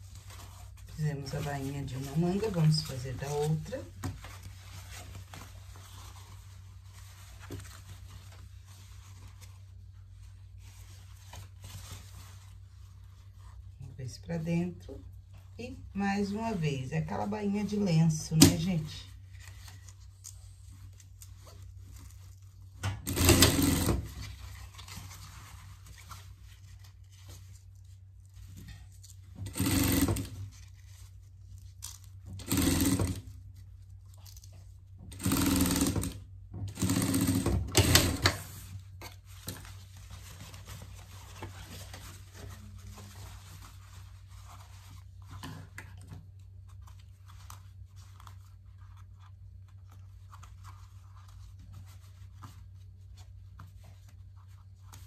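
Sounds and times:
sewing machine stitching: 22.9s - 24.2s, 29.4s - 30.4s, 32.3s - 33.3s, 35.1s - 38.5s.

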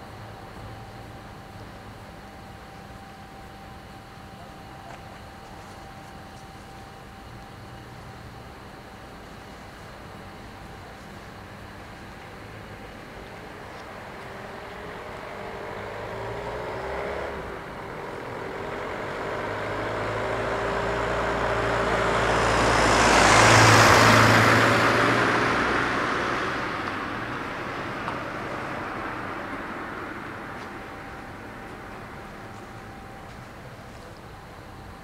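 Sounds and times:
vehicle driving past: 14.3s - 33.3s.

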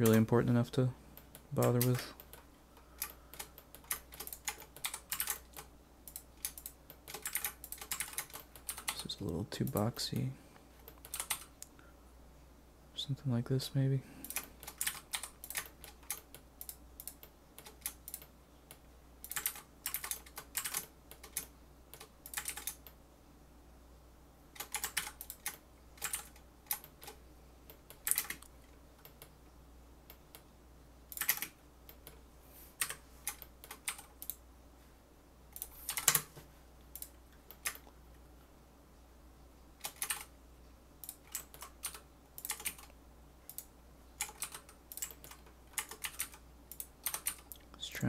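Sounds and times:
faint fan hum: 0.0s - 48.0s
computer keyboard tapping: 1.2s - 9.8s, 10.8s - 11.5s, 14.2s - 23.0s, 24.6s - 29.3s, 31.1s - 32.2s, 35.6s - 36.4s, 39.8s - 40.3s, 41.0s - 42.9s, 43.5s - 47.6s.

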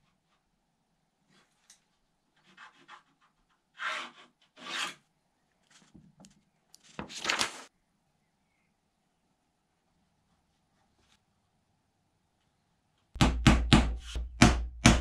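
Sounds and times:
pencil scratching on paper: 2.4s - 5.0s.

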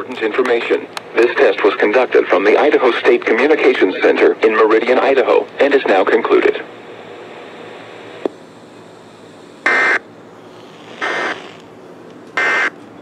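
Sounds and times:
radio hiss: 0.0s - 8.4s, 9.2s - 11.6s, 12.4s - 12.7s.

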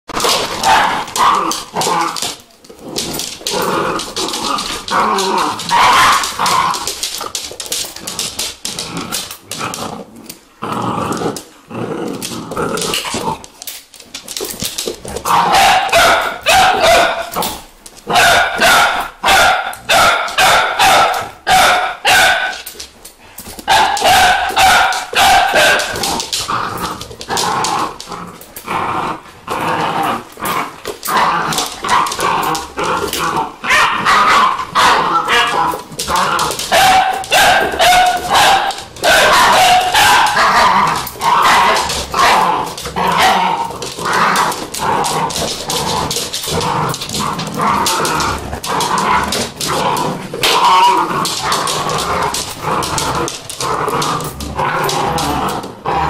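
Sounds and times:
dogs barking and yelping: 0.1s - 2.4s, 3.0s - 9.3s, 14.2s - 29.3s, 30.1s - 56.0s.

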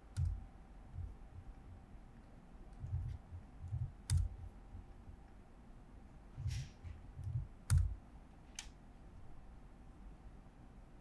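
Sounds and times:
computer keyboard keystrokes: 0.0s - 0.4s, 2.7s - 4.4s, 7.2s - 8.0s.

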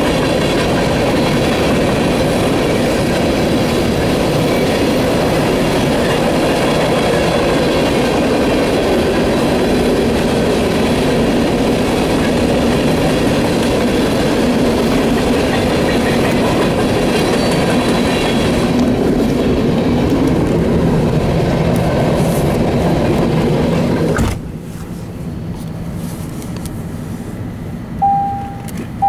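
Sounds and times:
train wheels clattering over rail joints: 0.0s - 24.5s
train rumbling: 0.0s - 29.0s
short ringing tone: 28.0s - 28.8s.

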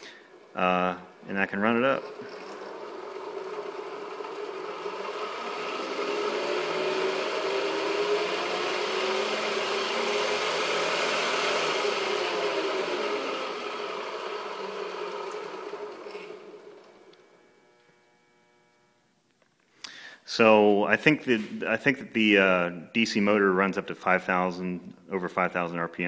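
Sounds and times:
belt whir: 0.0s - 19.0s
electric motor whine: 1.9s - 19.1s.

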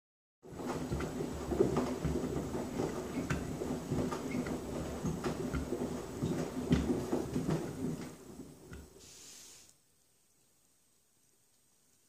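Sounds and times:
washing machine drum turning: 0.5s - 9.0s.

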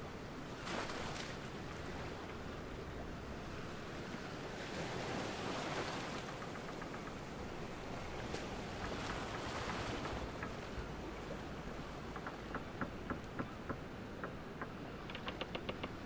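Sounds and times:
waves washing against shore: 0.0s - 16.0s.

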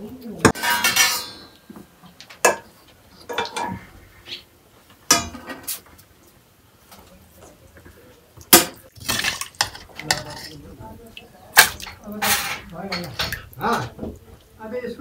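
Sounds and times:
steel plates and spoon clinking: 0.5s - 1.6s, 2.3s - 4.4s, 5.1s - 5.8s, 8.6s - 10.7s, 11.5s - 13.9s.

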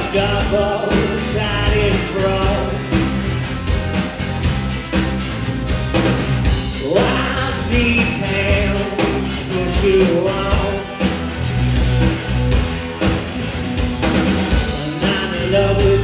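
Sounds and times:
lead vocal singing: 0.0s - 3.1s, 6.8s - 11.0s, 14.8s - 16.0s
drum kit: 0.0s - 16.0s
electric bass: 0.0s - 16.0s
electric guitars: 0.0s - 16.0s.

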